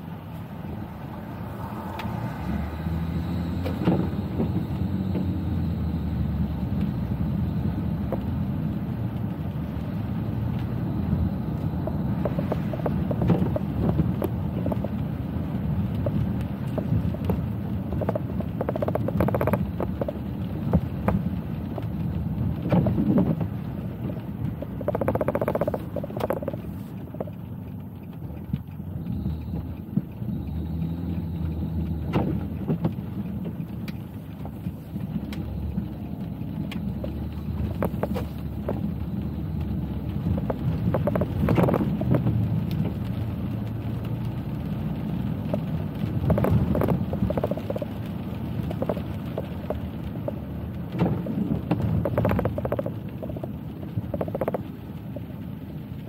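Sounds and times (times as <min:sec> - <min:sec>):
road and tyre rumble: 0:00.0 - 0:56.0
short knocks and clicks: 0:18.0 - 0:21.2, 0:24.6 - 0:27.3.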